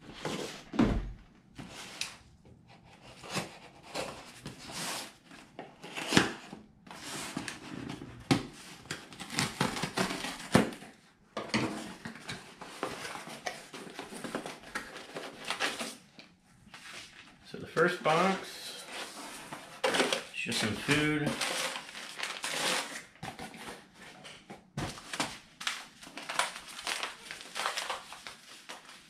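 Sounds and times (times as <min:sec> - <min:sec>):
cardboard rustling and scraping: 0:00.0 - 0:01.0, 0:02.7 - 0:10.9, 0:11.5 - 0:16.1, 0:18.1 - 0:29.0
packing tape tearing: 0:08.9 - 0:10.8, 0:19.8 - 0:23.5, 0:25.1 - 0:28.9.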